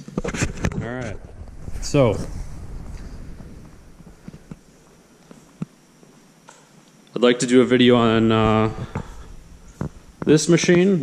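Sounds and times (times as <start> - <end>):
low rumble: 0.8 - 5.4, 7.6 - 10.9.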